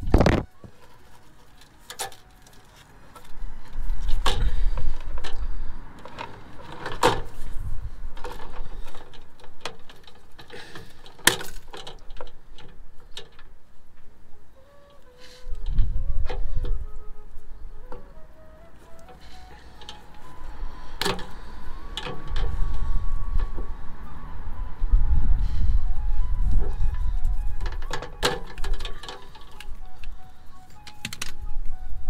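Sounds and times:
low rumble: 20.2s - 27.7s.

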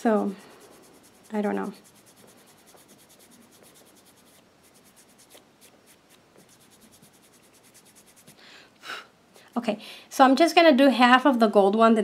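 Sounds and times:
sponge applicator rubbing on nail: 0.0s - 8.4s.

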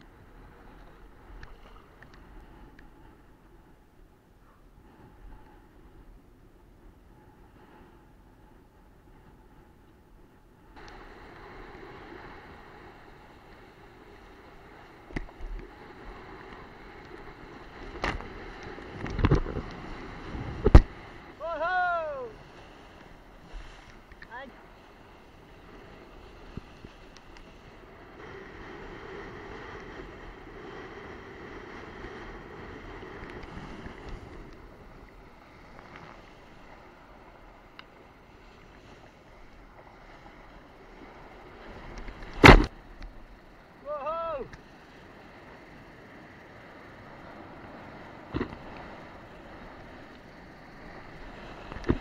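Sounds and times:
faint ticks: 0.0s - 21.3s, 22.4s - 28.2s, 29.5s - 52.0s
wind on microphone: 0.0s - 43.8s, 46.5s - 52.0s
board slapping water: 10.8s - 24.3s, 33.2s - 45.1s, 46.8s - 52.0s
rushing water: 14.5s - 25.0s.

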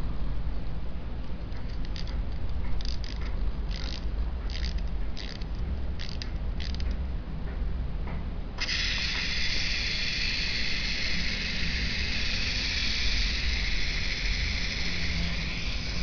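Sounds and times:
low steady rumble: 0.0s - 16.0s
wind-up toy gears clicking: 1.7s - 7.0s, 8.6s - 16.0s.

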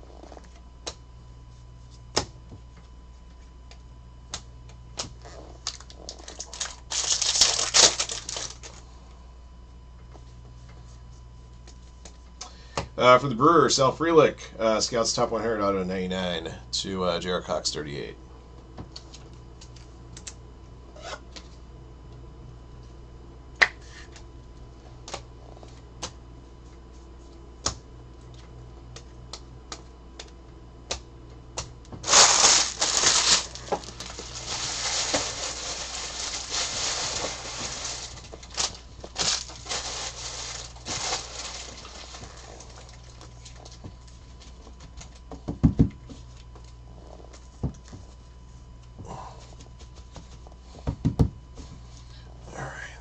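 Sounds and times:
cards rustling: 5.7s - 8.8s, 32.0s - 43.5s.

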